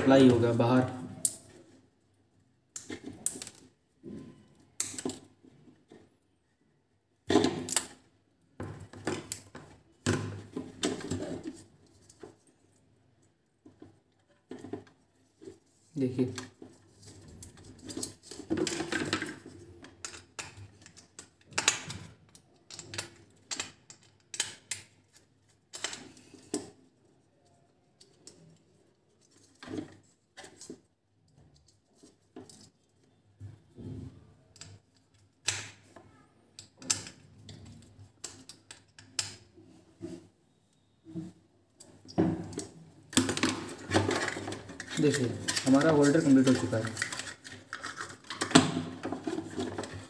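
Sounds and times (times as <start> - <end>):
plastic bulb holder rattling: 43.2 - 50.0.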